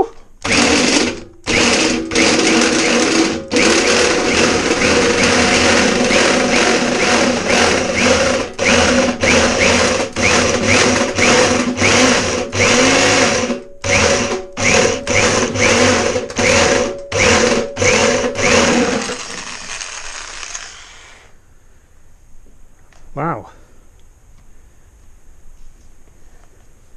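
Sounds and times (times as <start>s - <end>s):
electric drill grinding into steel: 0.4s - 21.4s.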